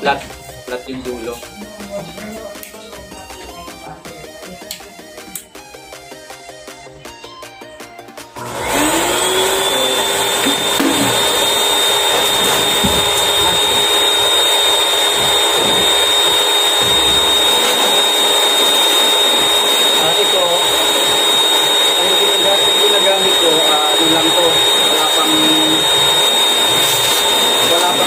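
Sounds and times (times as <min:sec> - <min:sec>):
background music: 0:00.0 - 0:28.0
pet dryer blower running: 0:08.4 - 0:28.0.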